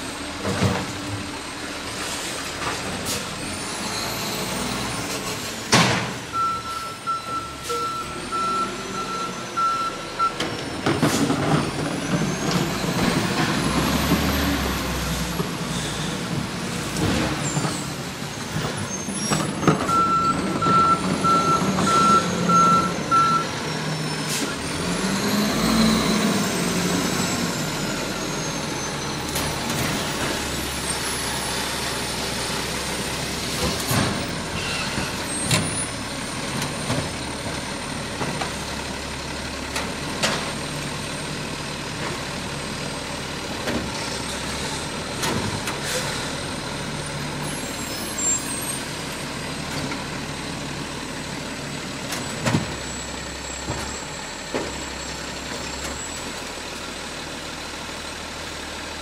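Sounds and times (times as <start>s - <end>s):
garbage truck diesel engine running: 0.0s - 59.0s
reversing alarm beeping: 6.3s - 10.4s, 19.9s - 23.6s.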